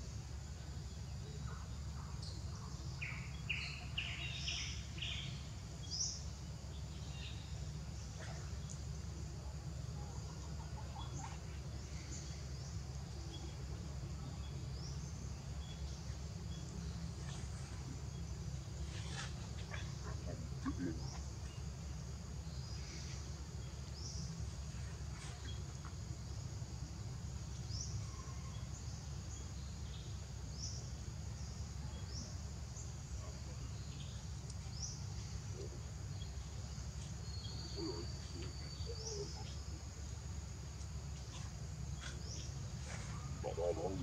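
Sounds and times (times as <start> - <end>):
high insect drone: 0.0 - 44.0
faint low calls: 43.0 - 44.0.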